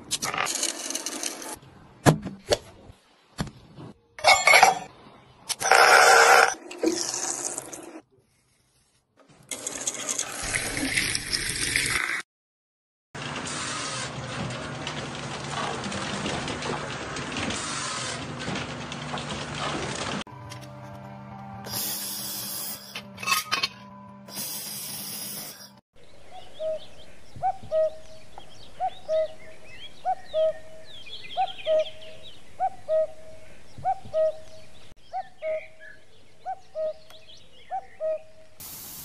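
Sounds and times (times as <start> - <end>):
welding gun hissing bursts: 21.7 - 23.0, 24.3 - 25.7, 38.6 - 39.0.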